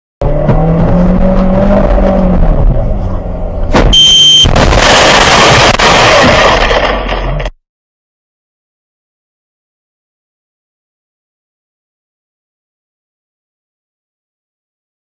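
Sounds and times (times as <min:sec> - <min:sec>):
car engine revving: 0:00.2 - 0:03.9
car crashing through glass: 0:03.7 - 0:07.6
brief high beep: 0:03.9 - 0:04.5
shattering glass and debris: 0:04.5 - 0:07.5.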